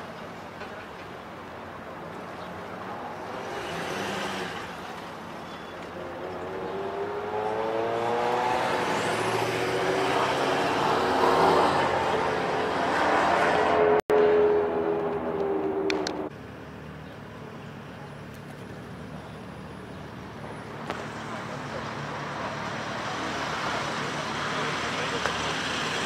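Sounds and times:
street noise: 0:00.0 - 0:26.0
car engine accelerating: 0:06.0 - 0:16.3.

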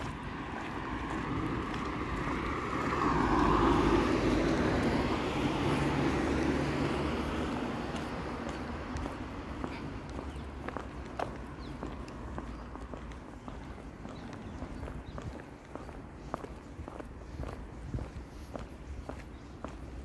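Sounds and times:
motor vehicle passing by: 0:00.0 - 0:16.5.

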